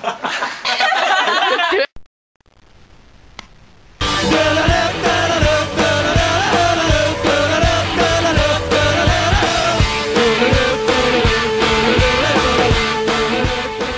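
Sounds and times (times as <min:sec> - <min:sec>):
rock song with drum beat: 0:04.0 - 0:13.9.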